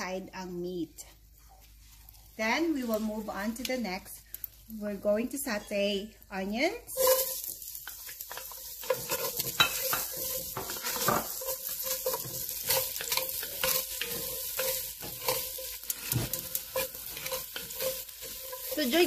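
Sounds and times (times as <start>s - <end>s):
onions sizzling in hot oil: 1.8s - 19.0s
wooden spatula scraping pot: 6.9s - 19.0s.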